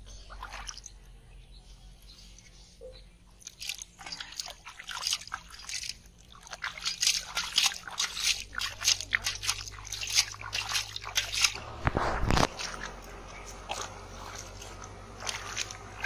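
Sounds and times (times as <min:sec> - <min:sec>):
fish splashing in a metal pot: 0:03.4 - 0:16.0.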